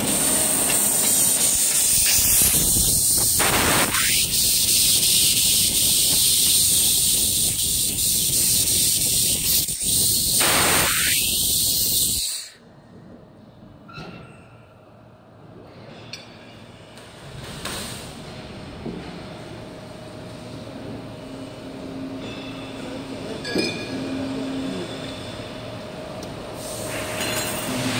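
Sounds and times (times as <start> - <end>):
laser cutter gas hiss: 0.0 - 12.6, 26.6 - 27.2
high whine: 0.6 - 12.6.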